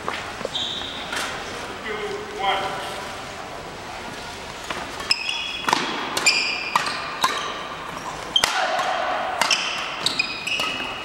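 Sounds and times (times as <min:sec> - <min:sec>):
shoes squeaking on floor: 0:00.0 - 0:01.3, 0:04.9 - 0:08.5, 0:09.4 - 0:11.0
racket striking shuttlecock: 0:05.0 - 0:11.0.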